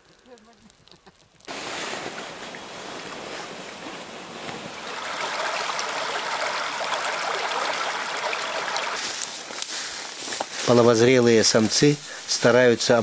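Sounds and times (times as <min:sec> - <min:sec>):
stream babbling over stones: 0:01.5 - 0:09.1.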